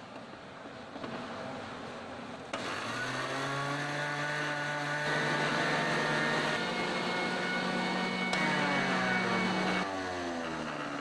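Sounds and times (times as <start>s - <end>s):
electric motor whining: 2.6s - 11.0s.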